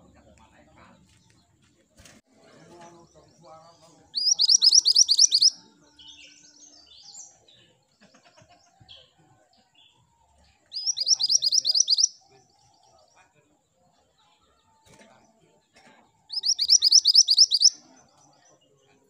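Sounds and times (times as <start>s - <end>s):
soft bird chirps: 2.8s - 8.0s, 9.8s - 15.5s, 16.2s - 19.0s
bird singing sharp rising notes: 4.2s - 5.5s, 10.8s - 12.1s, 16.3s - 17.7s.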